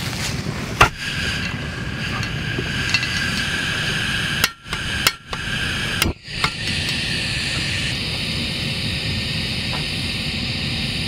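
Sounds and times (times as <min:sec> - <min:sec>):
steady gas hiss: 0:00.0 - 0:11.0
gas stove igniter clicks: 0:00.8 - 0:07.7.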